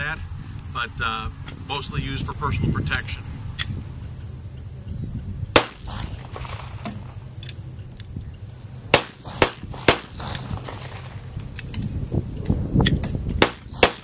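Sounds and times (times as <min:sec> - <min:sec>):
pistol shots: 0:05.5 - 0:07.2, 0:08.9 - 0:11.3, 0:13.4 - 0:14.0.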